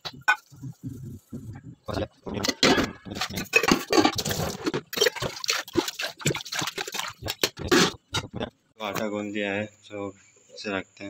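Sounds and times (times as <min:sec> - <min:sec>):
dough squelching in water: 0:04.8 - 0:07.9.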